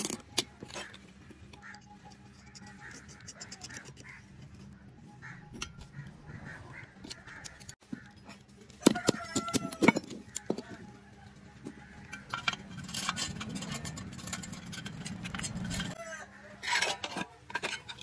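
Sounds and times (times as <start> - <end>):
metal parts clinking: 0.0 - 2.9, 7.0 - 10.8, 11.6 - 16.0, 16.6 - 18.0
metal parts scraping: 0.0 - 10.9, 11.6 - 16.0, 16.6 - 18.0.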